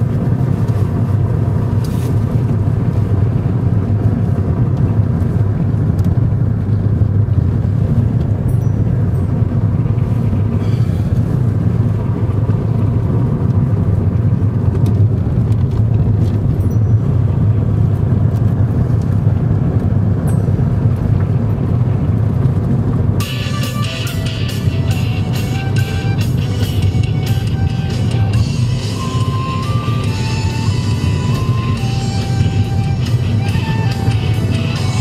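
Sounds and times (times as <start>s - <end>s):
car engine and tyre rumble: 0.0s - 35.0s
music: 23.2s - 35.0s.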